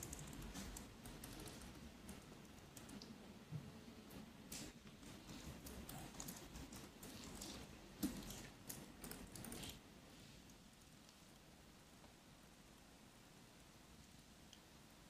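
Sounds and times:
typing on laptop keyboard: 0.0s - 3.2s, 5.0s - 9.8s.

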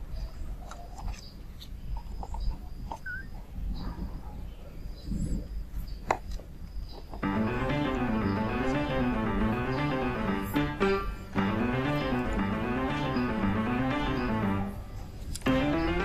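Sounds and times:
kitten chirp: 3.0s - 3.4s
soft music: 7.2s - 16.0s.

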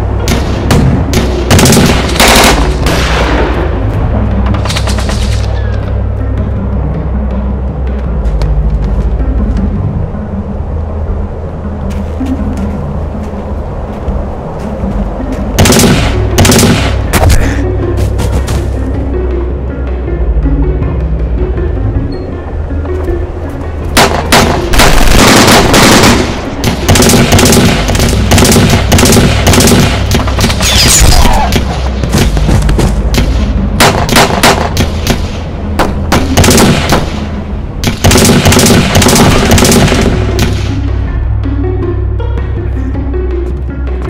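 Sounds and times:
low film score: 0.0s - 44.0s
automatic gunfire: 1.5s - 2.7s, 15.6s - 17.0s, 24.0s - 30.6s, 36.1s - 37.1s, 38.0s - 40.2s.

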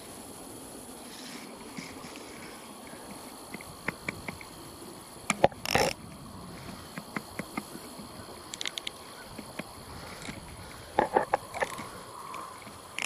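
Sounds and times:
light clicks and taps of fishing reel: 3.1s - 4.5s, 6.9s - 13.0s.

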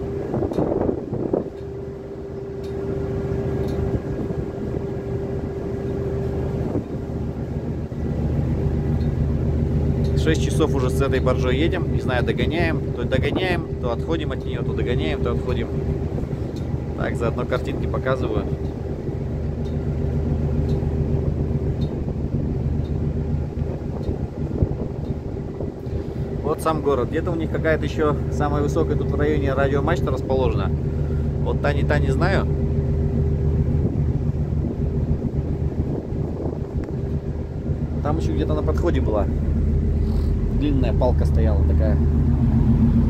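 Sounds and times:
diesel engine drone: 0.0s - 43.0s
steady hum: 0.0s - 43.0s
faint ticking: 8.6s - 31.6s.

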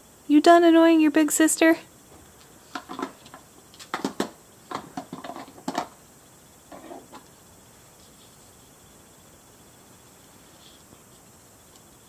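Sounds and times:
soft rustling: 7.7s - 8.8s.

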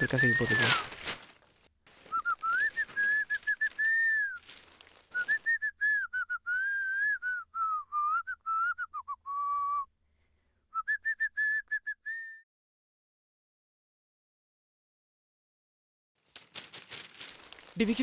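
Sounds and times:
newspaper crackling: 0.0s - 5.7s, 16.2s - 18.0s
person whistling a tune: 2.1s - 4.4s, 5.1s - 9.9s, 10.7s - 12.4s.

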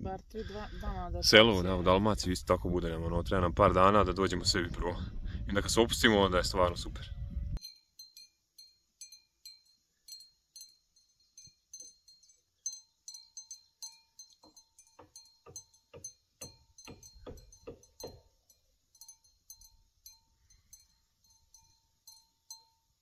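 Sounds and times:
sheep bells clinking: 7.6s - 23.0s.

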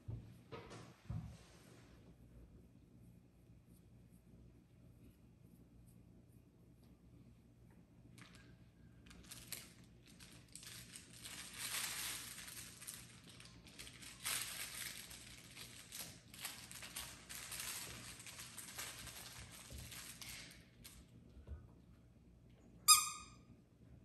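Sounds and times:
plush toy rustling and crinkling: 9.0s - 21.1s.

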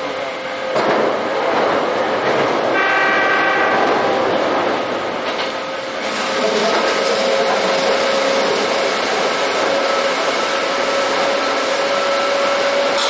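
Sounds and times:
train rumbling over bridge: 0.0s - 13.0s
train horn: 2.7s - 4.4s.

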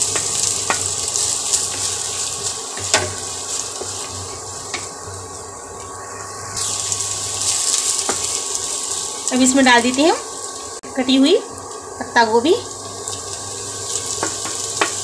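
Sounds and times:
hot oil sizzling: 0.0s - 15.0s.

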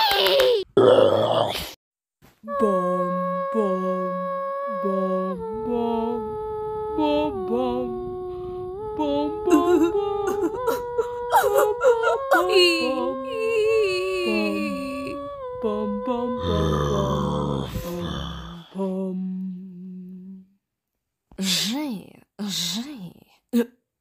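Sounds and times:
person humming a slow tune: 2.4s - 20.6s.

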